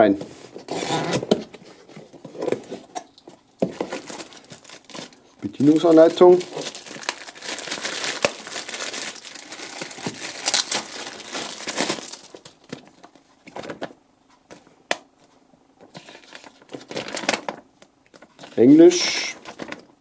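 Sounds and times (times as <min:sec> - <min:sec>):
plastic bag crinkling: 0:03.6 - 0:13.8, 0:16.0 - 0:20.0
paper rustling: 0:03.6 - 0:13.9.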